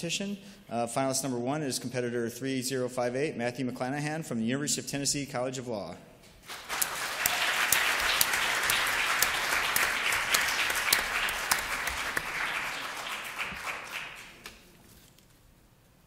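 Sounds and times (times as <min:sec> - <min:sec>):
audience applauding: 0:06.5 - 0:14.6.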